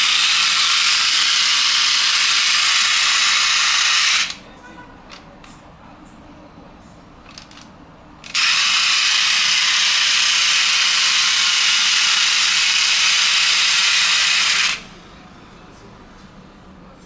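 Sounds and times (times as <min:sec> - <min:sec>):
toy bulldozer mechanical sound effect: 0:00.0 - 0:04.4, 0:08.2 - 0:14.9.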